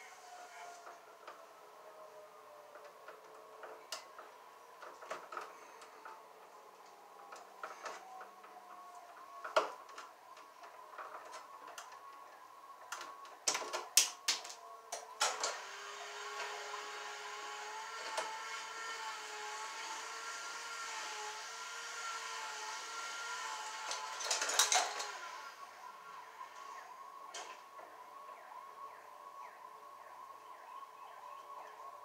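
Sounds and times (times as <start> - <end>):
whirring hum: 0.0 - 32.0
wire strippers clicking and snipping: 12.9 - 15.6.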